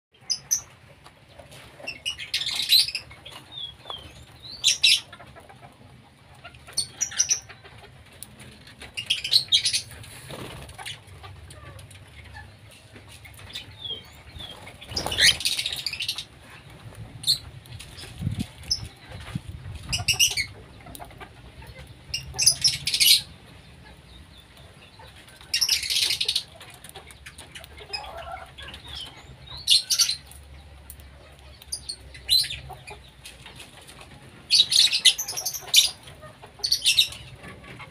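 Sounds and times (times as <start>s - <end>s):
wings fluttering: 8.3s - 11.5s, 12.9s - 21.1s
harsh bird calls: 13.4s - 20.9s.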